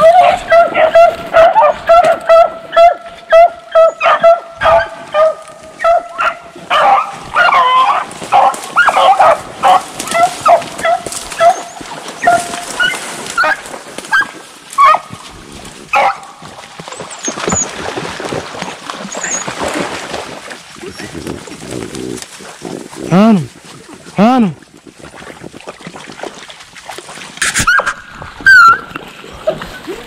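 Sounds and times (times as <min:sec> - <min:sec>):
dogs baying: 0:00.0 - 0:15.2, 0:15.9 - 0:17.8.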